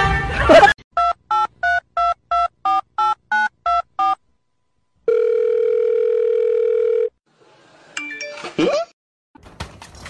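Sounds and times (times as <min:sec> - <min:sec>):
telephone ringback tone: 0:05.1 - 0:07.1.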